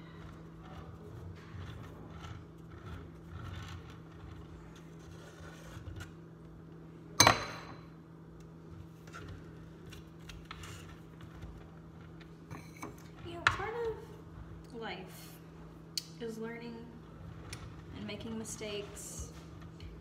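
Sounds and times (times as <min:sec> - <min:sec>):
faint scraping of icing tools: 0:00.0 - 0:06.2, 0:08.7 - 0:15.7.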